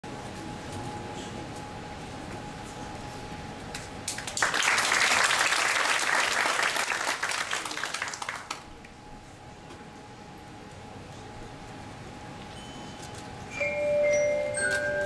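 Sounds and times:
audience applauding: 0:04.1 - 0:08.7.

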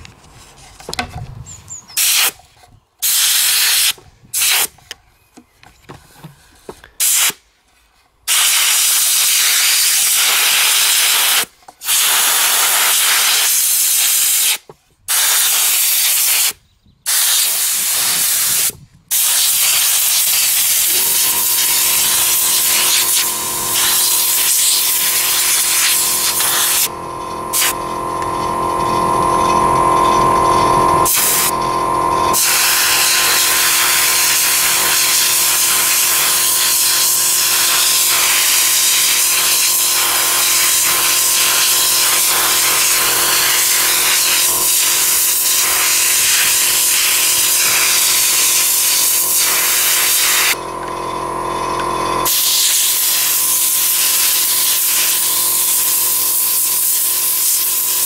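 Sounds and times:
compressed-air blow gun hissing: 0:01.9 - 0:02.4, 0:03.0 - 0:04.8, 0:06.9 - 0:07.4, 0:08.3 - 0:27.9, 0:31.0 - 0:31.6, 0:32.3 - 0:50.6, 0:52.2 - 0:58.0
steady hum: 0:19.8 - 0:54.3.

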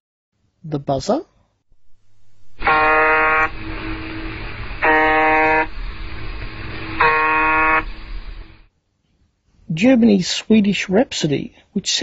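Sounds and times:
faint steady tone: 0:01.7 - 0:08.6
harsh radio buzzes: 0:01.8 - 0:08.7
radio hiss: 0:01.8 - 0:08.7.

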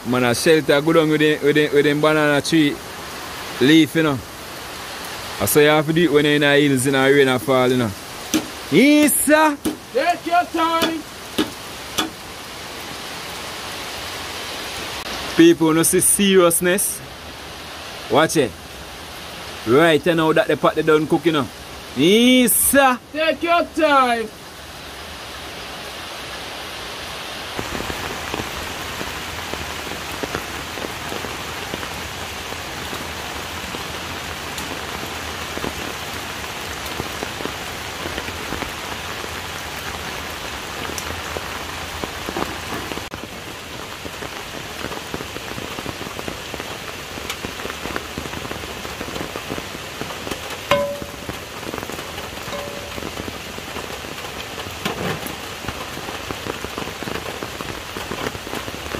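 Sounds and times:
steady rain hiss: 0:00.0 - 0:58.9
drips ticking: 0:07.6 - 0:12.2, 0:50.2 - 0:54.6
sharp knock: 0:08.3 - 0:08.6, 0:09.6 - 0:09.9, 0:10.8 - 0:12.2.

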